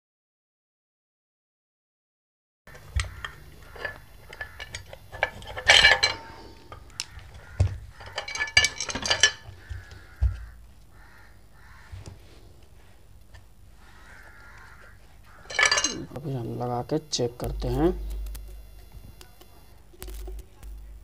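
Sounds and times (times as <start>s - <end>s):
tools and parts clicking and clinking: 2.7s - 10.5s, 14.6s - 16.3s, 19.2s - 20.9s.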